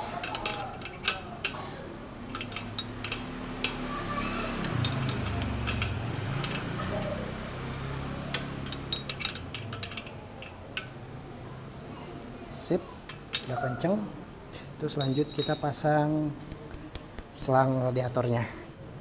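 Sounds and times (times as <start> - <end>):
wrench clinking against metal: 0.0 - 1.6, 2.2 - 3.8, 4.6 - 6.8, 8.3 - 11.0, 13.1 - 13.8, 14.9 - 15.9.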